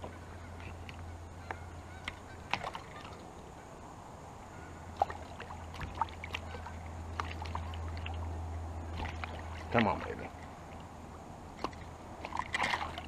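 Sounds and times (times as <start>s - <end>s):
steady low hum: 0.0s - 13.0s
fish splashing in water: 1.9s - 3.3s, 4.9s - 13.0s.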